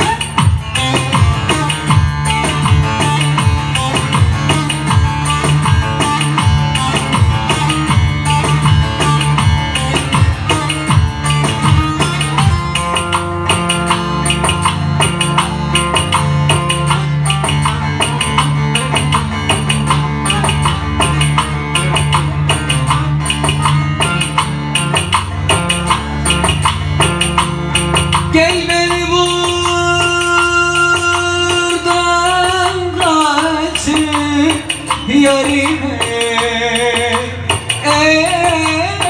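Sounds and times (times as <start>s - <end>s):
drum and tambourine beat: 0.0s - 28.3s
long-necked lute played fast: 0.0s - 28.4s
person singing: 28.3s - 39.0s.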